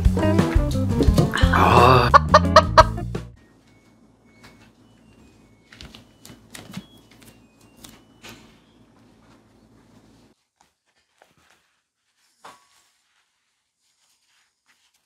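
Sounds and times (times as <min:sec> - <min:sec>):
music jingle: 0:01.4 - 0:05.8.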